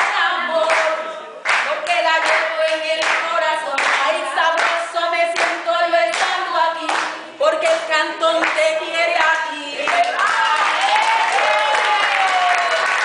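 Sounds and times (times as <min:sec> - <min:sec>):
hand claps: 0:00.0 - 0:08.7, 0:09.9 - 0:13.0
woman singing unaccompanied: 0:00.0 - 0:10.3.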